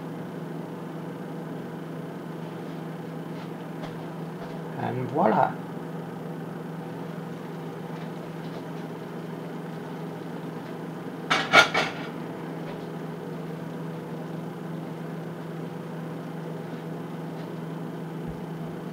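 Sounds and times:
steady low hum: 0:00.0 - 0:18.9
iron lid clanking on stovetop: 0:11.3 - 0:12.1.

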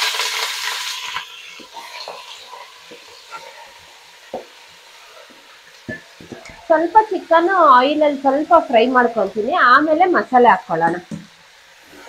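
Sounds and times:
chicken sizzling in oil: 0:00.0 - 0:12.0.

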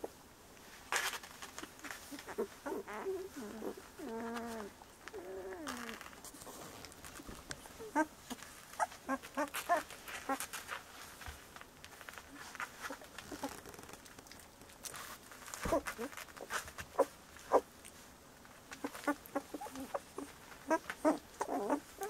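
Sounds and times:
puppies whining: 0:01.8 - 0:06.1, 0:07.6 - 0:10.7, 0:15.6 - 0:17.7, 0:18.7 - 0:22.0
puppies squeaking: 0:07.6 - 0:08.1, 0:08.7 - 0:10.6, 0:18.8 - 0:22.0.

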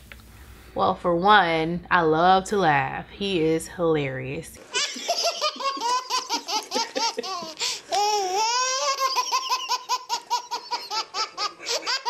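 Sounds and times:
baby laughing: 0:04.7 - 0:12.0.

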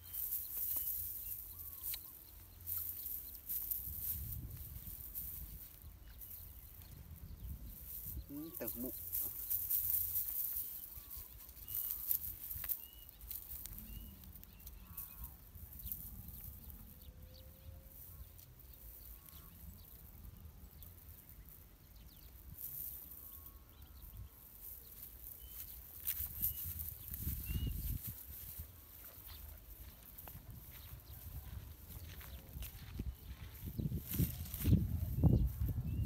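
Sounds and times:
wind rumbling on microphone: 0:03.8 - 0:08.4, 0:26.0 - 0:36.0.

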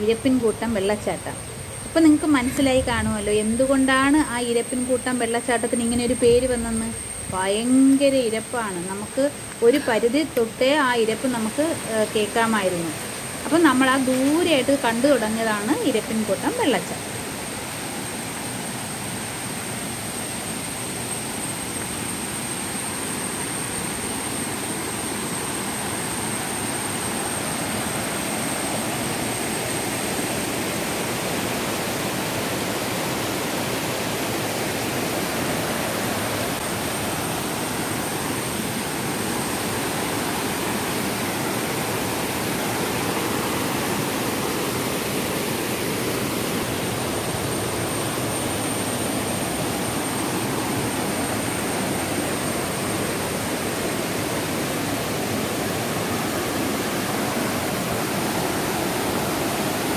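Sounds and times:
waterfall roaring: 0:22.7 - 0:59.9.

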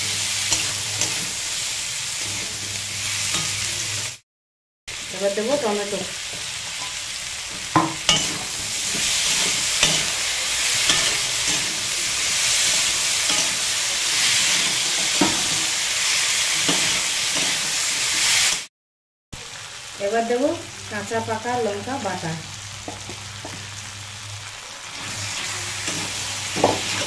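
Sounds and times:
metal spatula scraping a pan: 0:00.0 - 0:04.0, 0:07.7 - 0:18.6, 0:25.0 - 0:27.0
food sizzling in hot oil: 0:00.0 - 0:04.2, 0:04.9 - 0:18.7, 0:19.4 - 0:27.0.

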